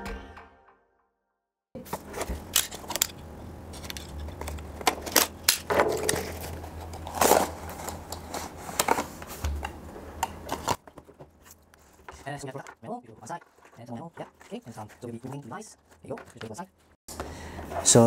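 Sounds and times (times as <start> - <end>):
cardboard rustling: 4.0 - 9.4, 10.5 - 17.0.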